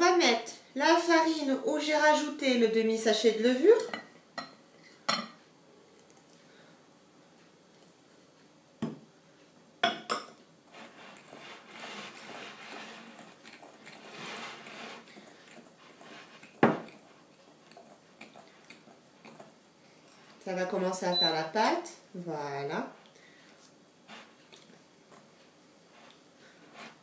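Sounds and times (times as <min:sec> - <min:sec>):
utensil scraping glass bowl: 0:10.7 - 0:19.4, 0:26.0 - 0:27.0.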